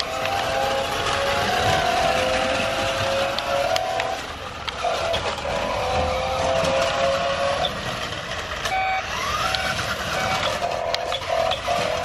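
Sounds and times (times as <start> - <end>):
electric motor whining: 0.0 - 12.0
wheels and chassis clicking: 0.0 - 12.0.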